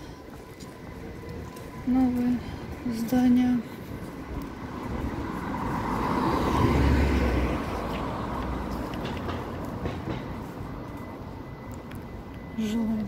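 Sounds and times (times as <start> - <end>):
vehicle driving past: 4.5 - 9.5.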